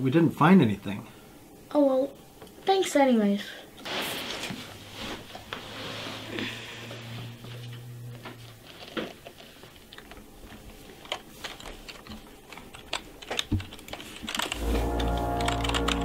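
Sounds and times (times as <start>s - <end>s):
typing on computer keyboard: 11.0s - 16.0s.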